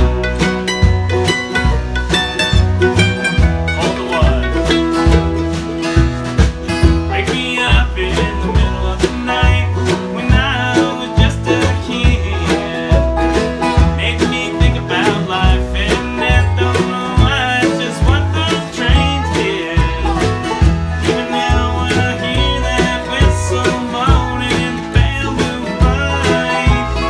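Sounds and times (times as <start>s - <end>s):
country song with plucked strings: 0.0s - 27.0s
steady beat: 0.0s - 27.0s
person singing: 3.2s - 5.4s, 7.0s - 27.0s.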